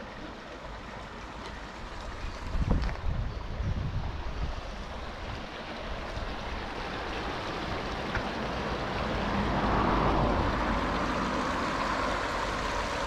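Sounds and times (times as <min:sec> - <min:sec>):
traffic noise: 0:00.0 - 0:13.0
wind rumble on microphone: 0:01.9 - 0:13.0
tyre hiss of passing car: 0:06.5 - 0:13.0.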